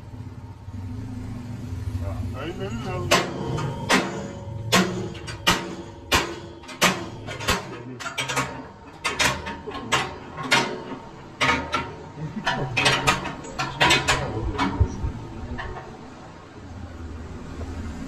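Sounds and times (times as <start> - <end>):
metallic clicks and knocks: 2.9 - 16.6.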